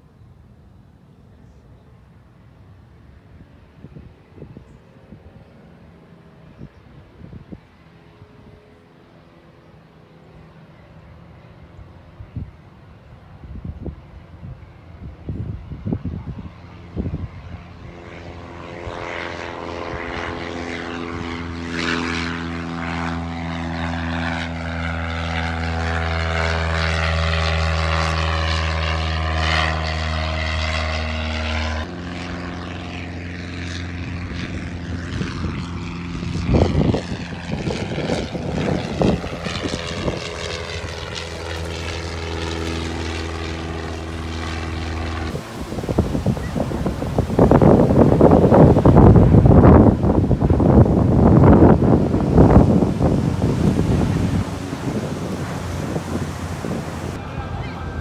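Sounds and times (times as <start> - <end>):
propeller plane droning: 0.0 - 58.0
wind gusts on microphone: 6.4 - 8.6, 12.1 - 58.0.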